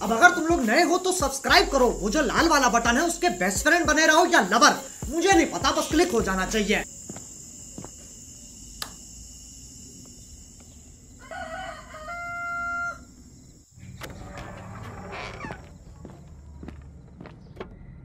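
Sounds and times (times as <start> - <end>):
rooster crowing: 11.1 - 13.5.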